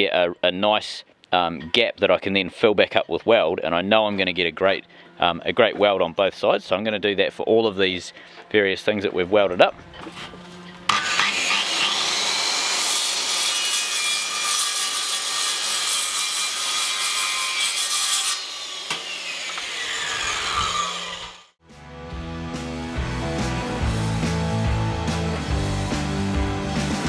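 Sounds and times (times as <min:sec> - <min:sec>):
background music: 0:01.4 - 0:09.9, 0:21.6 - 0:27.0
circular saw cutting metal: 0:09.9 - 0:21.5
saw blade winding down: 0:10.9 - 0:13.6, 0:18.2 - 0:21.5.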